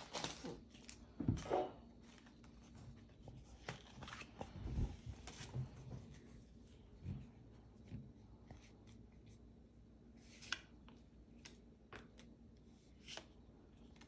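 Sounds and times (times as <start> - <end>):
foil wrapper rustling: 0.0 - 1.1.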